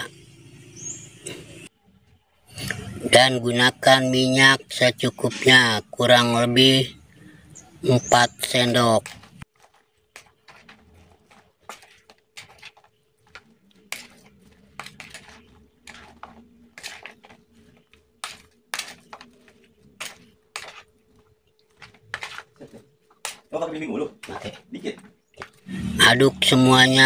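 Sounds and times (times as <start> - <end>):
spoon stirring and scraping bowl: 8.5 - 23.5.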